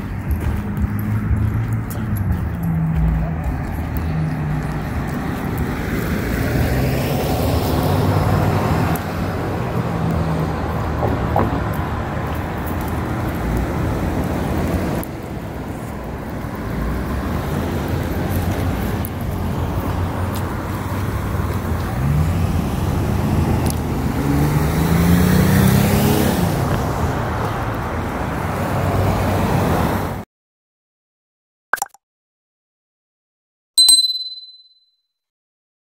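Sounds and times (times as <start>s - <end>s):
car engine accelerating: 0.0s - 12.5s, 21.8s - 27.3s
cars driving past: 0.0s - 30.2s.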